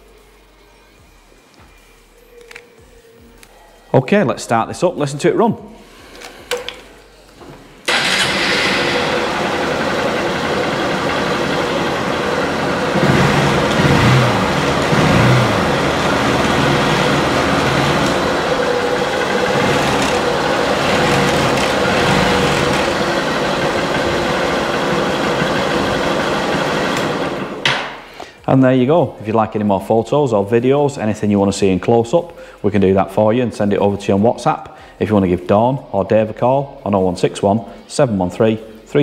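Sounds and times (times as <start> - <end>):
motorcycle engine starting and idling: 7.9 - 28.0.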